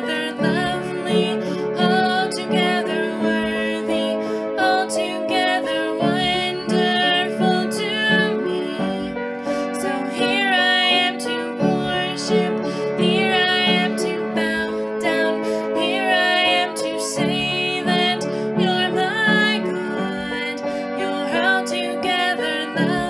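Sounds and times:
woman singing with vibrato: 0:00.0 - 0:23.0.

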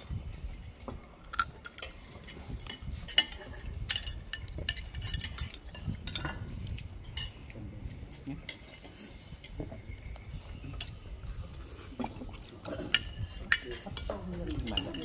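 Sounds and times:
cutlery clinking on dishes: 0:01.3 - 0:07.6, 0:12.6 - 0:15.0.

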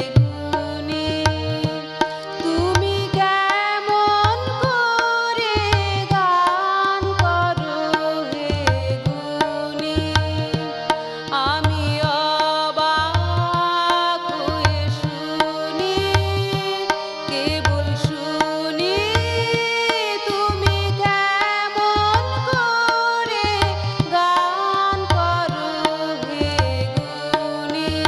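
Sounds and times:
harmonium: 0:00.0 - 0:28.0
tabla playing rhythm: 0:00.0 - 0:28.0
woman singing: 0:00.0 - 0:28.0.

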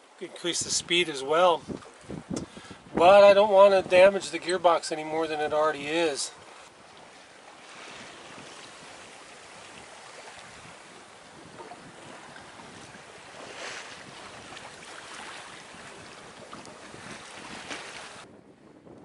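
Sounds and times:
sea washing past boat hull: 0:00.0 - 0:18.3
wind: 0:00.0 - 0:19.0.

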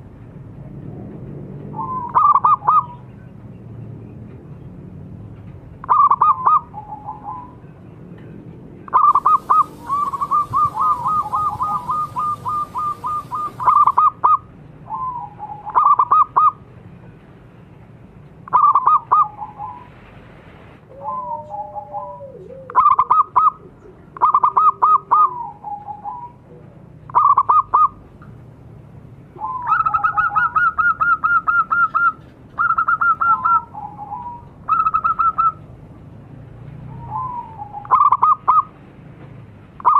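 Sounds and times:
doves cooing: 0:01.7 - 0:03.1, 0:05.8 - 0:07.6, 0:08.9 - 0:16.6, 0:18.5 - 0:19.9, 0:20.9 - 0:28.0, 0:29.4 - 0:35.7, 0:36.8 - 0:38.7.

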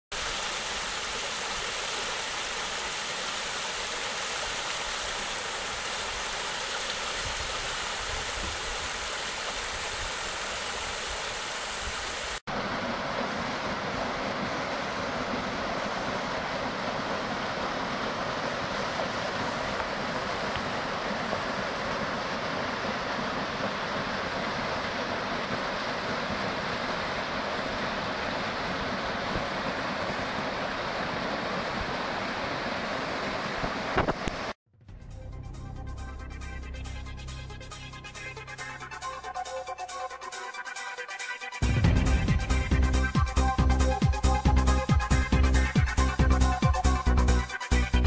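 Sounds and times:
stream rushing over rocks: 0:00.1 - 0:34.6.

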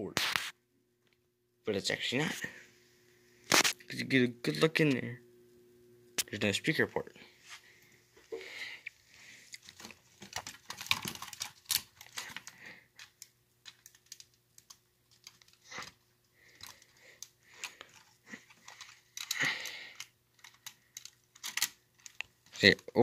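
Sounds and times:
faint steady hum: 0:00.0 - 0:23.0
plastic model train clicking: 0:16.6 - 0:22.8.

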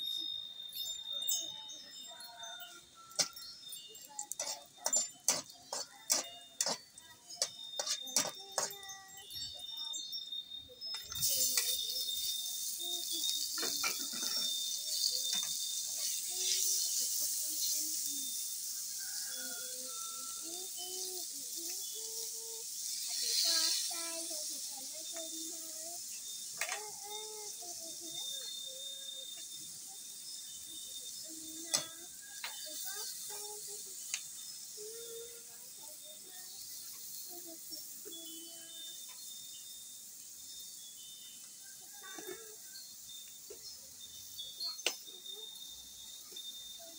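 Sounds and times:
meat sizzling in wok: 0:00.0 - 0:10.1, 0:10.8 - 0:46.9
metal spatula scraping wok: 0:04.2 - 0:07.0.

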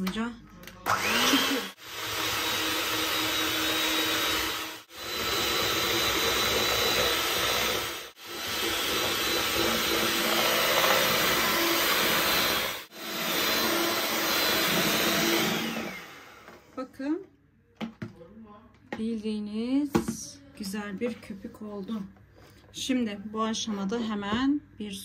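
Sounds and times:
electric hand mixer whirring: 0:00.8 - 0:16.8.

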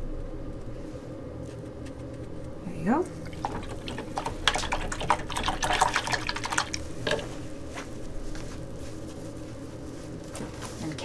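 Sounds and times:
low steady hum: 0:00.0 - 0:11.0
paintbrush splashing in water jar: 0:03.2 - 0:07.6.

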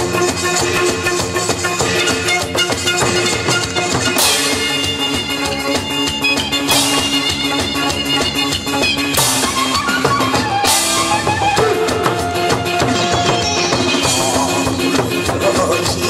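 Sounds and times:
backing music: 0:00.0 - 0:16.0
barrel drums beaten fast: 0:00.0 - 0:16.0.

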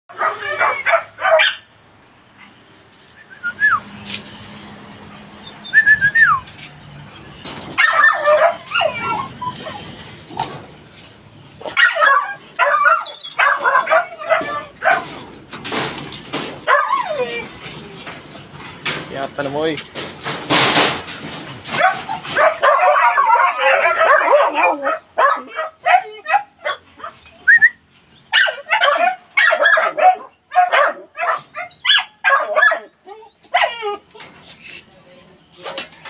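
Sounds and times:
dogs barking and yelping: 0:00.1 - 0:01.7, 0:05.1 - 0:06.5, 0:07.2 - 0:10.7, 0:11.5 - 0:15.5, 0:16.2 - 0:18.5, 0:21.6 - 0:34.8
dogs whining: 0:05.3 - 0:06.5, 0:07.2 - 0:10.5, 0:11.6 - 0:15.2, 0:16.6 - 0:18.0, 0:21.8 - 0:27.8, 0:31.2 - 0:34.8.

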